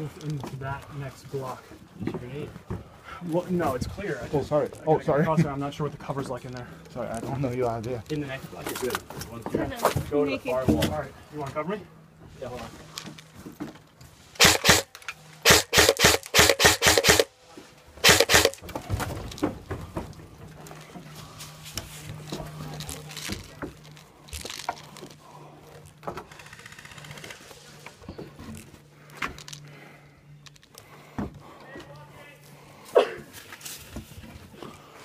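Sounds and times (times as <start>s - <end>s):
airsoft rifle shots: 14.4s - 17.3s, 18.0s - 18.6s.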